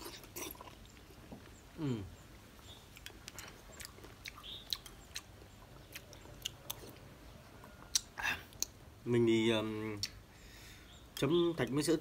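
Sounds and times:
person chewing soft jelly: 0:00.0 - 0:08.9.

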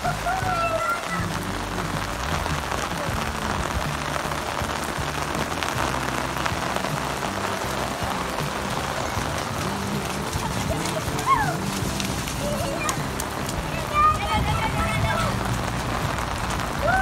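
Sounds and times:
heavy rain on rooftops: 0:00.0 - 0:17.0.

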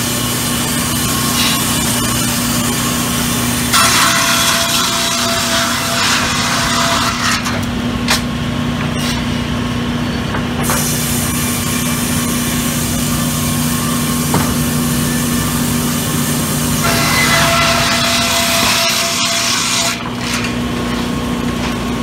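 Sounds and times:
saw motor hum: 0:00.0 - 0:07.7, 0:11.1 - 0:22.0
saw cutting log hiss: 0:10.7 - 0:20.0.

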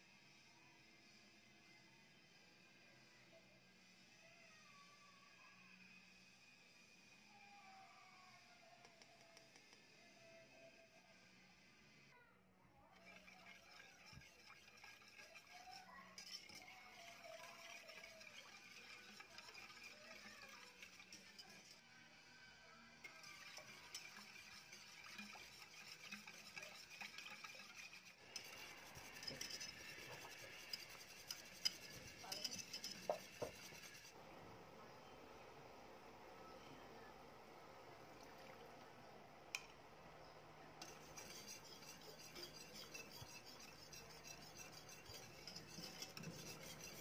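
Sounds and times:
whisk clinking against pot: 0:13.0 - 0:21.8, 0:23.0 - 0:34.2, 0:40.8 - 0:47.0
whisk swishing in sauce: 0:13.0 - 0:21.8, 0:23.0 - 0:34.2, 0:40.8 - 0:47.0.

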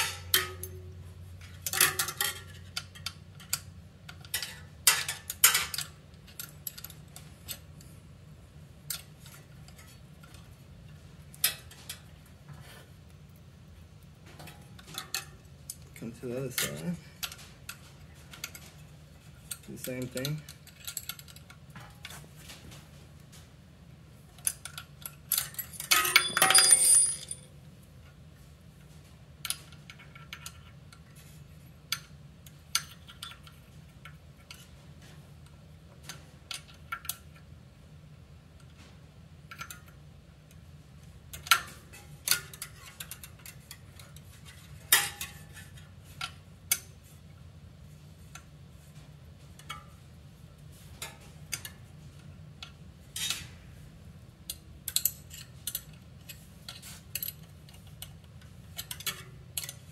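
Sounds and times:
wrench clinking on bolts: 0:00.0 - 0:07.8, 0:24.4 - 0:27.5, 0:54.5 - 0:59.9
ringing metallic clatter: 0:25.4 - 0:27.4.

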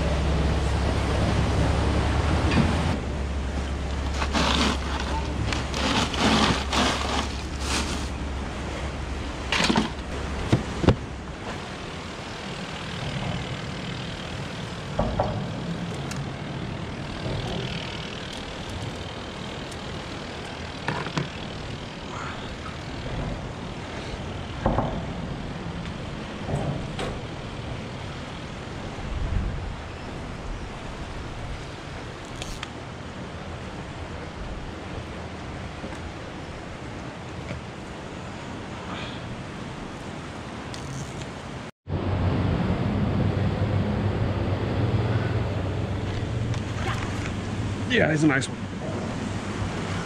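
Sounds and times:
passing traffic: 0:00.0 - 0:28.9, 0:41.9 - 0:50.0
water: 0:00.0 - 0:50.0
wind: 0:00.0 - 0:50.0
fishing gear knocking and clattering: 0:03.9 - 0:08.2, 0:09.5 - 0:11.1, 0:17.0 - 0:21.8.

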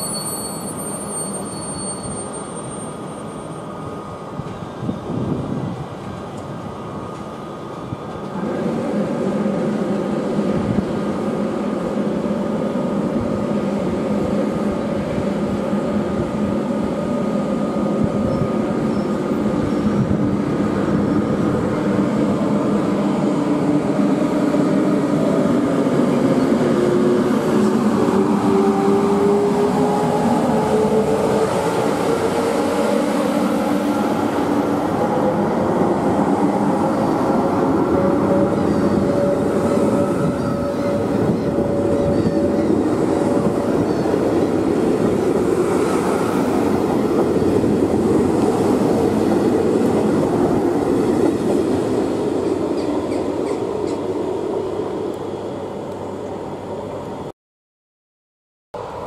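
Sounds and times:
electric train hum and whine: 0:00.0 - 0:57.3, 0:58.8 - 0:59.0.

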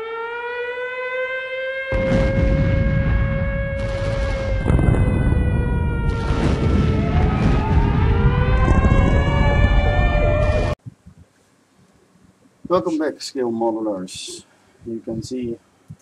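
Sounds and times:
air-raid sirens wailing: 0:00.0 - 0:10.8
dense low rumble: 0:02.0 - 0:11.2.

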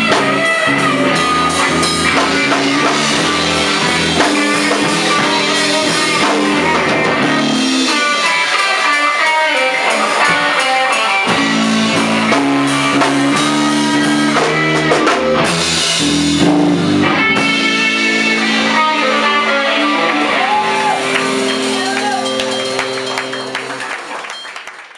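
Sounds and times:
blues electric guitars: 0:00.0 - 0:23.9.

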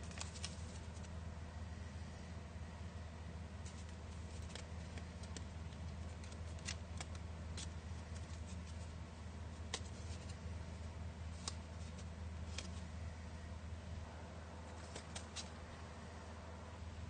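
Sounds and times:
paper crinkling: 0:00.0 - 0:01.2, 0:03.6 - 0:10.5, 0:11.3 - 0:12.9, 0:14.7 - 0:15.6
steady low hum: 0:00.0 - 0:17.0.

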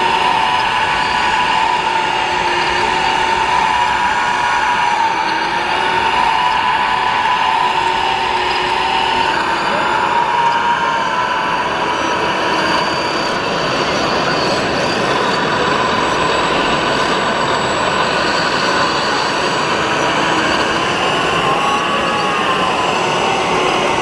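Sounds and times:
dense background din: 0:00.0 - 0:24.0
small electric motors whining: 0:00.0 - 0:24.0.

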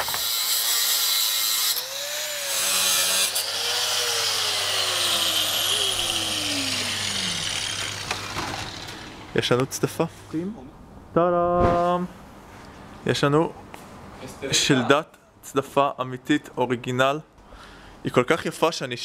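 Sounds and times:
angle grinder grinding steel: 0:00.0 - 0:09.4.

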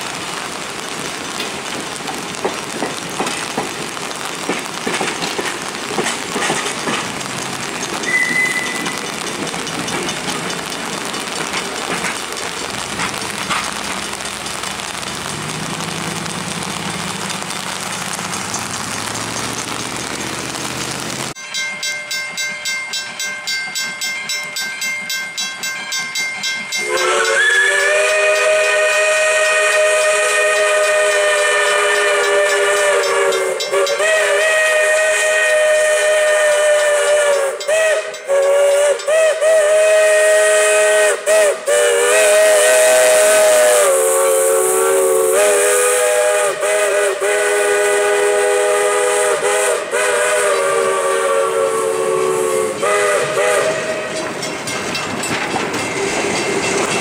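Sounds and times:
chime steam whistle blasts: 0:07.9 - 0:09.2, 0:21.3 - 0:54.7.

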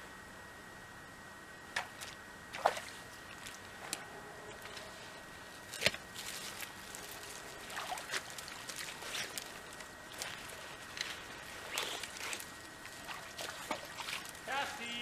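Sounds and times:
sharp snaps and knocks: 0:05.7 - 0:06.4
creek trickling: 0:06.2 - 0:14.5.

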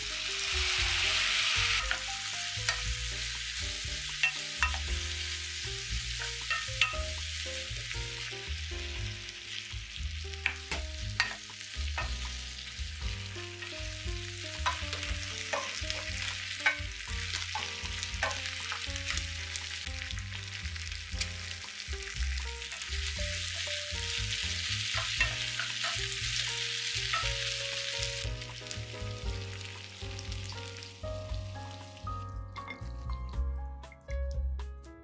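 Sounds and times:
vegetables sizzling in oil: 0:00.0 - 0:33.2
wooden spoon knocking pan: 0:10.4 - 0:12.4, 0:14.6 - 0:18.9.

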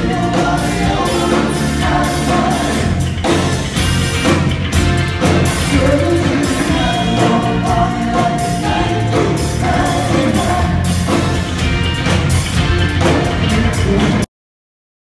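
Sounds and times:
person singing: 0:00.0 - 0:03.1, 0:05.6 - 0:11.4, 0:13.5 - 0:14.3
live band playing: 0:00.0 - 0:14.3.

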